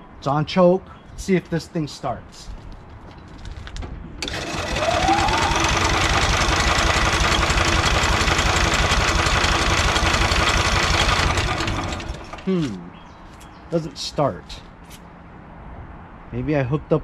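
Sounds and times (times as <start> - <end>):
electric starter cranking engine: 4.2 - 12.6.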